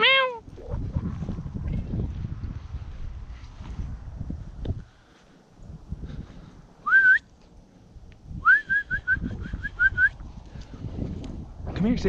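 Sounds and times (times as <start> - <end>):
person whistling to call dogs: 6.8 - 7.3, 8.4 - 10.2.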